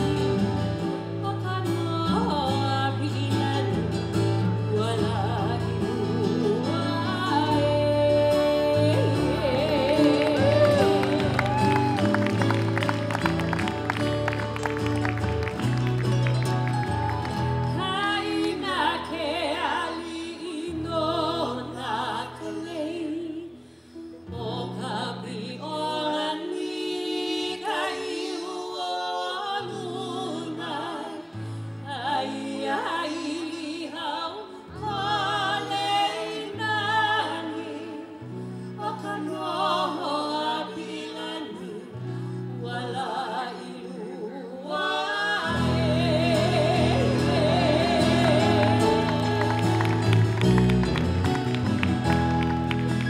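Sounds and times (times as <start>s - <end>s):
woman singing into a microphone: 0.0s - 12.0s, 17.6s - 49.6s
backing music with low notes: 45.6s - 53.0s.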